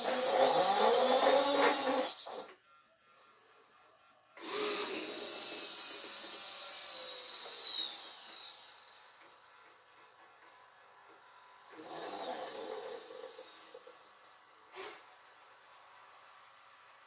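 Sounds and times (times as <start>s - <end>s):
servo motors whirring: 0.0s - 2.6s.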